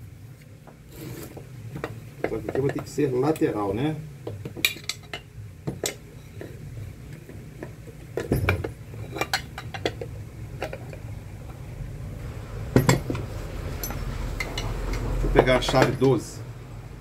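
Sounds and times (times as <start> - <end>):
metal clinks and knocks: 7.3 - 11.1, 12.7 - 13.2.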